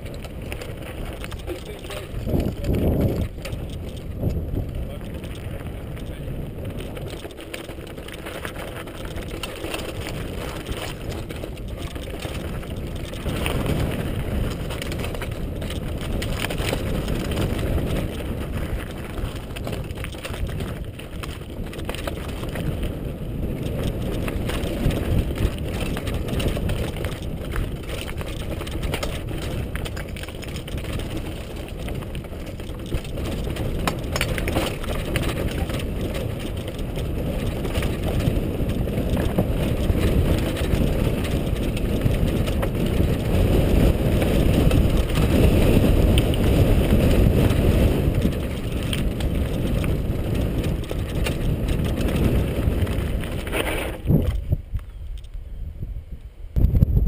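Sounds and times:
mountain bike rattling over gravel: 0.0s - 55.4s.

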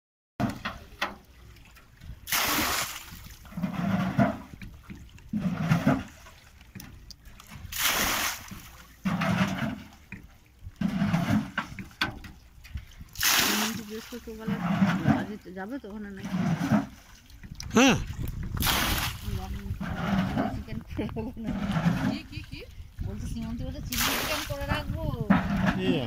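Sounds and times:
water rushing out with splash: 0.4s - 12.1s, 12.8s - 15.4s, 16.2s - 20.8s, 23.8s - 26.0s
deep gurgling of water filling can: 2.2s - 4.5s.

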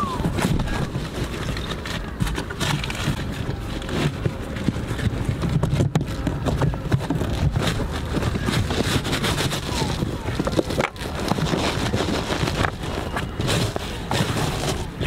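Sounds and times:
car floor mat rustling and scraping: 0.2s - 15.0s.

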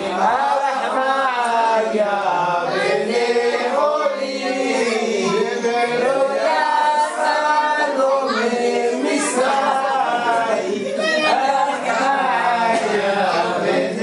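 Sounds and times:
group singing unaccompanied: 0.0s - 14.0s.

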